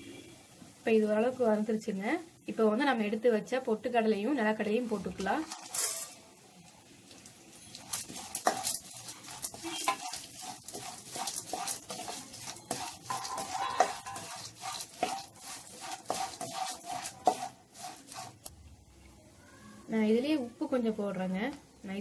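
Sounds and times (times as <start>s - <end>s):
skimmer scraping steel pan: 5.2s - 6.2s, 7.7s - 18.5s.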